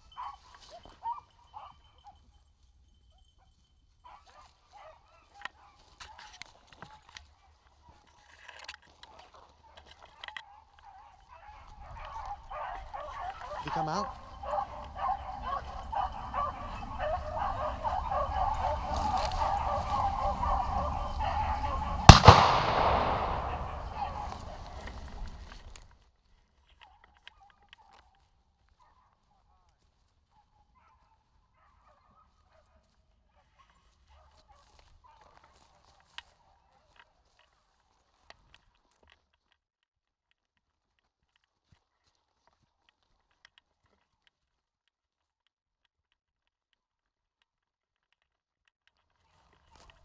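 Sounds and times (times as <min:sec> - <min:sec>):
dogs baying: 0:00.0 - 0:02.3, 0:09.1 - 0:25.3
dogs baying faintly: 0:00.0 - 0:25.8, 0:26.7 - 0:38.2
loud shotgun blast with echo: 0:22.0 - 0:24.8.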